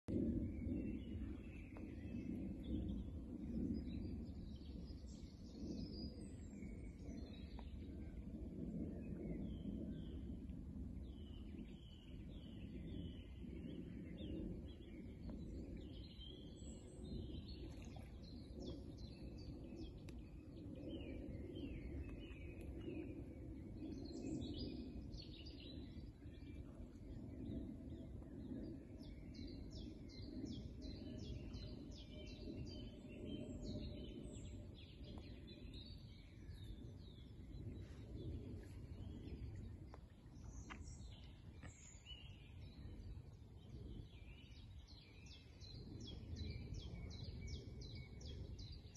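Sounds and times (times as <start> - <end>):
low background rumble: 0.1 - 48.9.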